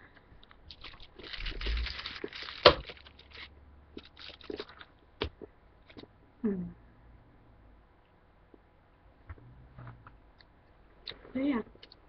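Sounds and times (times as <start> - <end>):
tin foil crinkling: 0.7 - 4.9.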